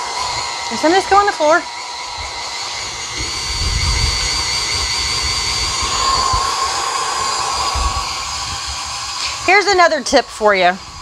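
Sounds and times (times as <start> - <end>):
beater churning potatoes: 0.0 - 11.0
stand mixer motor whining: 0.0 - 11.0.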